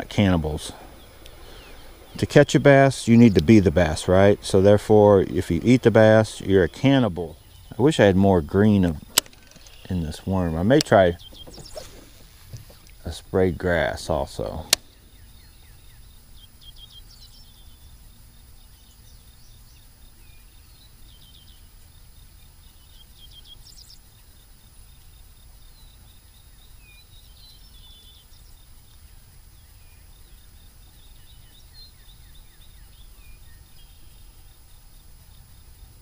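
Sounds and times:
high insect trill: 0.0s - 36.0s
short bird chirps: 11.0s - 12.9s.

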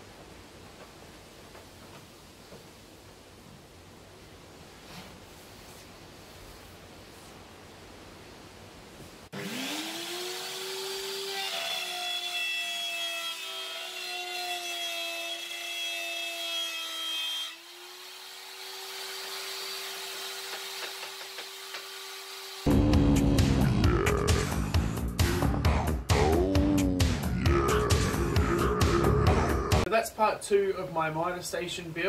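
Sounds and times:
router cutting wood: 9.3s - 23.4s
router motor whining: 9.4s - 15.8s
music: 22.7s - 29.9s.

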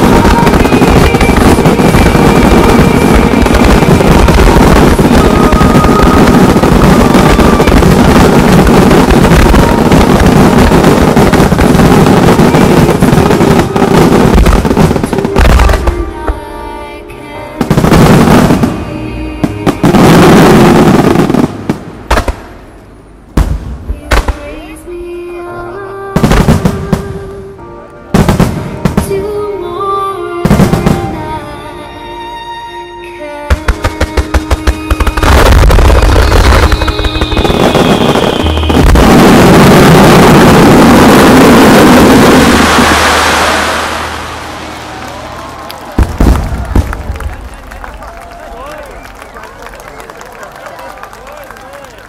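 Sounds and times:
loud fireworks booms: 0.0s - 16.6s, 17.6s - 24.8s, 26.2s - 27.3s, 28.1s - 29.4s, 30.4s - 31.4s, 33.5s - 52.0s
fireworks bursts and crackle: 0.0s - 31.6s, 33.4s - 52.0s.

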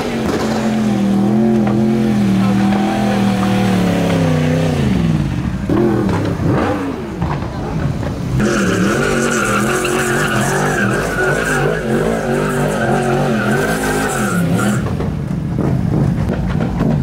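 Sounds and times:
motorcycle engine revving high: 0.0s - 7.2s
tyre squealing on pavement: 5.8s - 17.0s.

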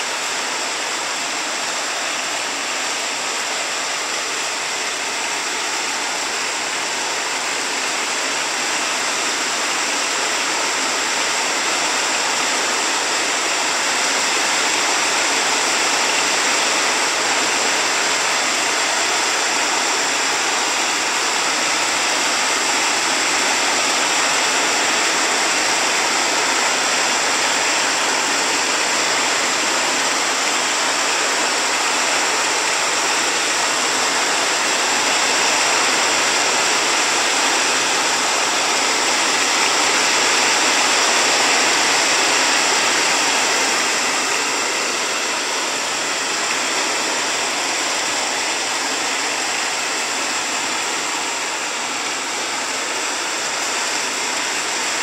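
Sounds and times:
rain falling on grass and leaves: 0.1s - 55.0s.

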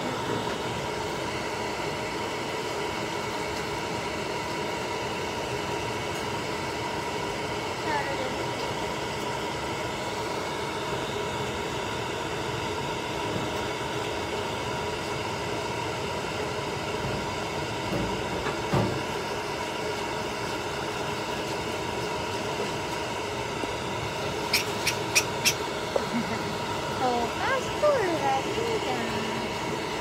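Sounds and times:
hair dryer running: 0.0s - 7.8s, 8.4s - 30.0s.

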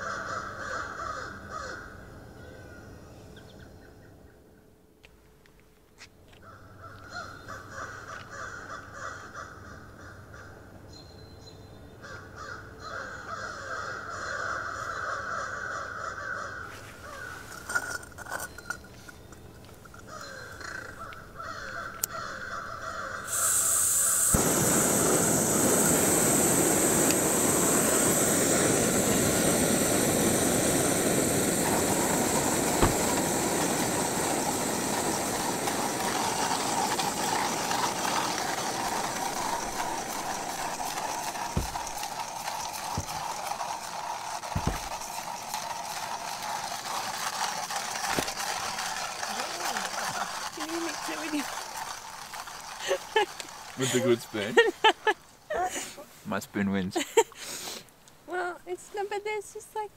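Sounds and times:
crows calling: 0.0s - 2.9s, 6.3s - 10.8s, 12.0s - 17.7s, 19.9s - 24.3s, 36.4s - 42.2s
camping stove hissing: 23.2s - 56.4s, 57.2s - 58.0s.

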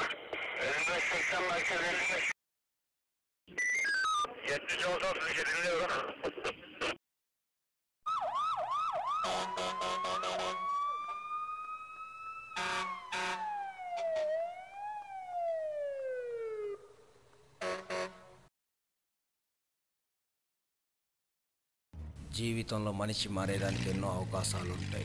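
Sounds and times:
radio static clicks: 0.0s - 1.2s
police siren yelping and wailing: 8.1s - 17.0s.

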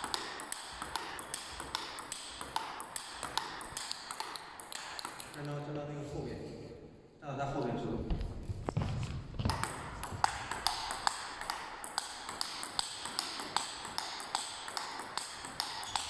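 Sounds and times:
table tennis ball clicking: 0.0s - 5.6s, 9.4s - 16.0s.

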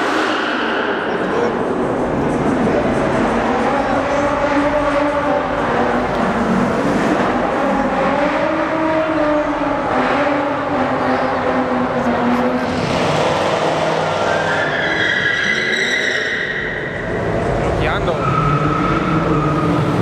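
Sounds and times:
car engine revving: 0.0s - 20.0s
tyres squealing: 14.2s - 17.2s.

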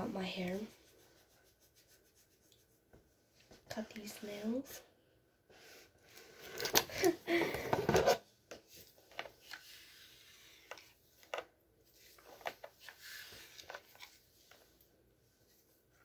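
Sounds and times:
hair and hands rustling: 0.0s - 4.8s.

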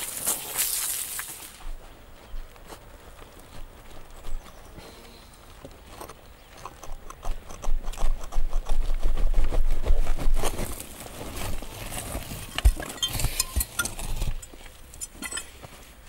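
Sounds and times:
soil clods falling: 0.0s - 1.6s, 9.3s - 15.8s
hands scraping earth: 2.4s - 16.0s.

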